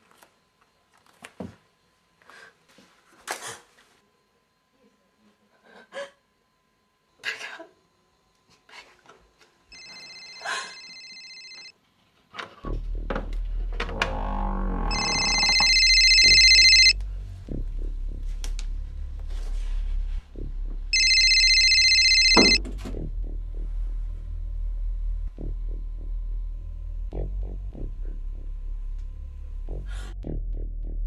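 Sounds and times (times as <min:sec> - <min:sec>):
telephone ringing: 0:09.7 - 0:11.7, 0:14.9 - 0:17.0, 0:21.0 - 0:22.6
low droning music: 0:16.4 - 0:21.0, 0:22.6 - 0:31.0.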